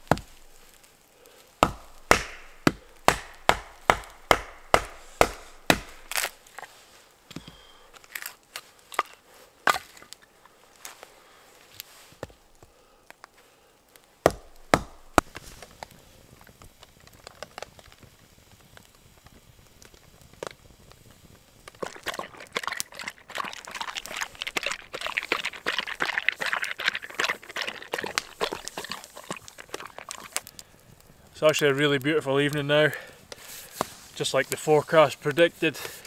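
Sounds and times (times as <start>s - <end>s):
hatchet chopping firewood: 0.0s - 0.9s, 1.6s - 6.7s, 8.9s - 10.2s, 14.2s - 15.8s, 21.8s - 30.6s
wood fire crackling: 0.0s - 36.0s
dog crunching dry kibble: 1.8s - 6.6s, 21.8s - 30.7s.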